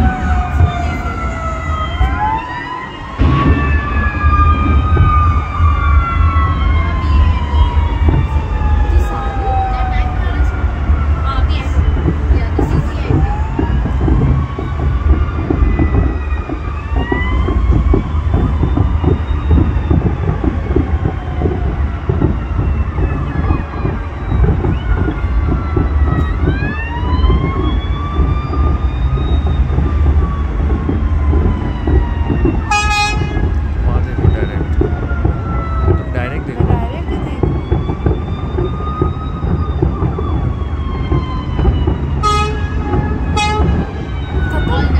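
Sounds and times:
deep rumble: 0:00.0 - 0:44.9
emergency vehicle siren wailing: 0:00.0 - 0:44.9
fireworks bangs and crackles: 0:00.0 - 0:44.9
loud horn blast: 0:32.7 - 0:33.4, 0:42.2 - 0:43.8.

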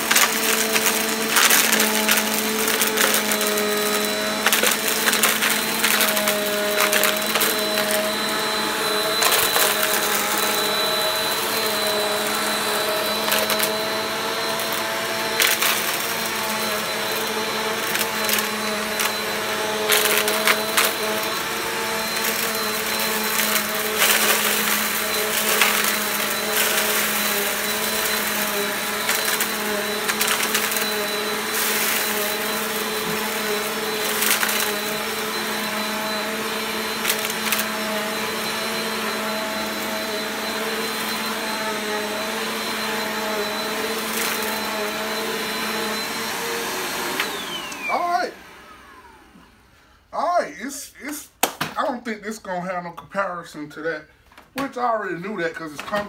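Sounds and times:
vacuum cleaner running: 0:00.0 - 0:50.4.

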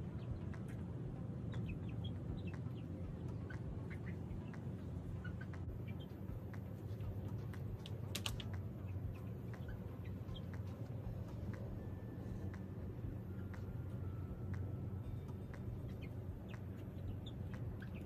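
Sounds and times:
low background rumble: 0:00.0 - 0:18.0
hens clucking and peeping: 0:00.2 - 0:18.0
sharp clicks: 0:06.5 - 0:08.8.

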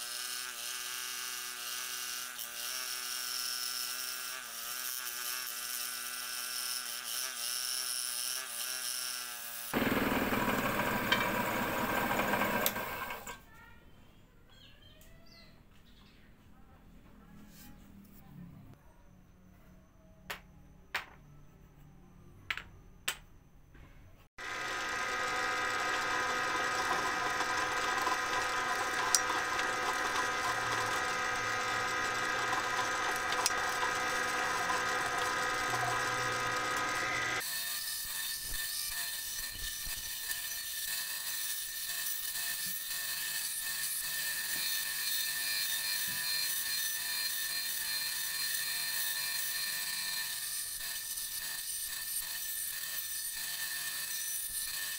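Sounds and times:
band saw cutting wood: 0:00.0 - 0:13.4, 0:24.4 - 0:54.9
bench power tool humming: 0:00.0 - 0:13.4, 0:24.4 - 0:54.9.

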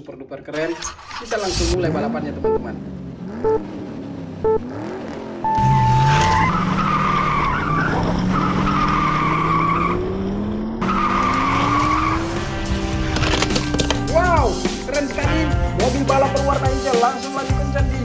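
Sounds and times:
car engines revving: 0:00.6 - 0:16.6
start beep: 0:02.4 - 0:02.7, 0:03.4 - 0:03.7, 0:04.4 - 0:04.7, 0:05.4 - 0:06.6
tires squealing: 0:04.7 - 0:15.5.

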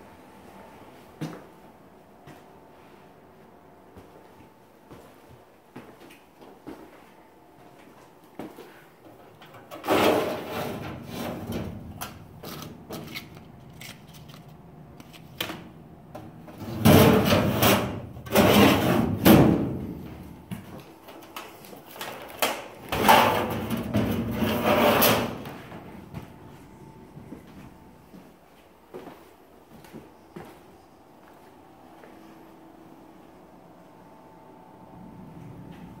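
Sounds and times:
metal desk drawers opening and shutting: 0:09.6 - 0:13.3, 0:16.5 - 0:20.0, 0:22.9 - 0:25.5.

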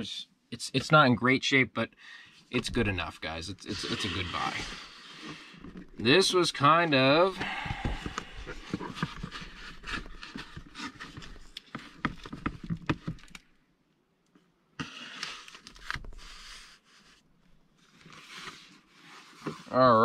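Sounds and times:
rustling: 0:02.6 - 0:13.4.

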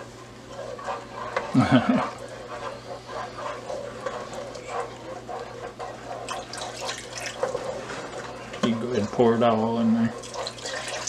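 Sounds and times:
wooden spoon scraping a pot: 0:00.0 - 0:11.0
water pouring: 0:10.2 - 0:11.0.

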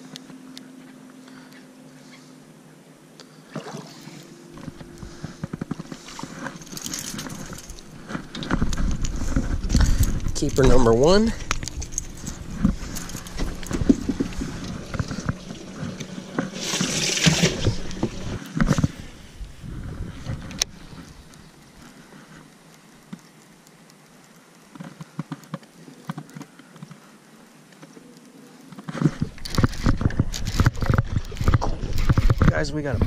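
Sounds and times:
water splashing: 0:03.5 - 0:19.3.

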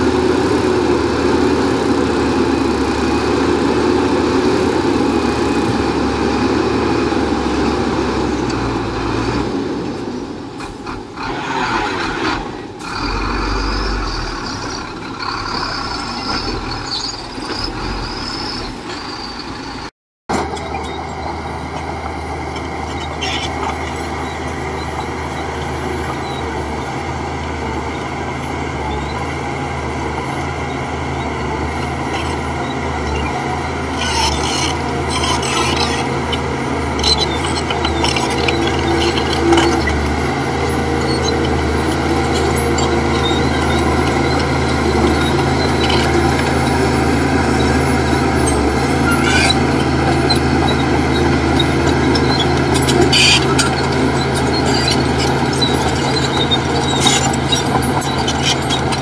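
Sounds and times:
diesel machinery running: 0:00.0 - 0:59.0
high squeal: 0:12.9 - 0:27.2, 0:30.5 - 0:59.0.

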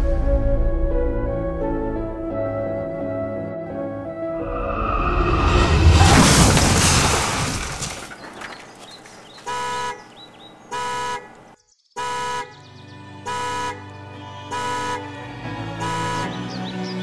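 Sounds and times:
car horn blasts: 0:09.5 - 0:10.1, 0:10.7 - 0:11.4, 0:12.0 - 0:12.6, 0:13.3 - 0:13.9, 0:14.5 - 0:15.1, 0:15.8 - 0:16.4.

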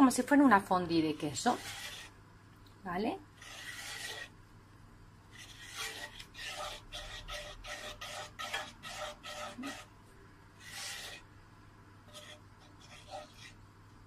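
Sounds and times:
utensil scraping pan stirring sauce: 0:00.8 - 0:02.2, 0:03.3 - 0:04.4, 0:05.3 - 0:10.0, 0:10.6 - 0:11.4, 0:12.0 - 0:13.7.

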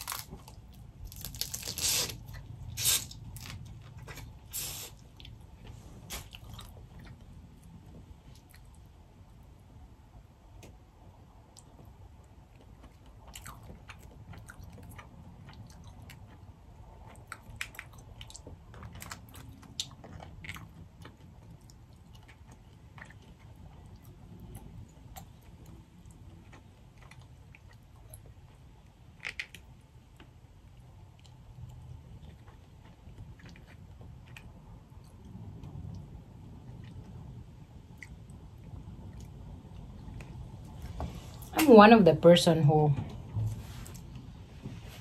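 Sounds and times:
crawfish shells cracking: 0:00.0 - 0:03.6
quiet chewing: 0:00.0 - 0:09.5, 0:11.4 - 0:41.5.

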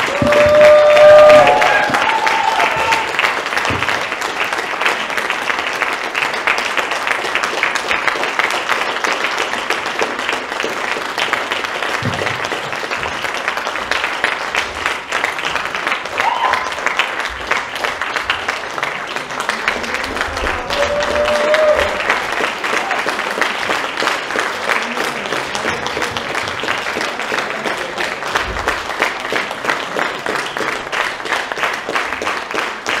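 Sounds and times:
held call from crowd: 0:00.0 - 0:03.3, 0:19.8 - 0:23.6
audience applauding: 0:00.0 - 0:33.0.

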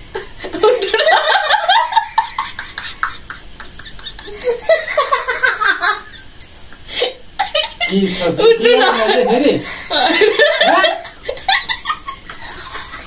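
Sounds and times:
people laughing: 0:07.4 - 0:13.0.

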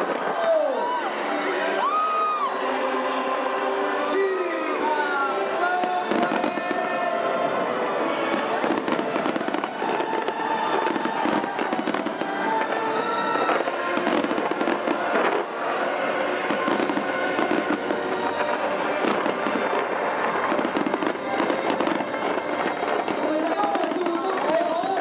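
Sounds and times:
fireworks crackling and popping: 0:00.0 - 0:02.8, 0:04.2 - 0:25.0.

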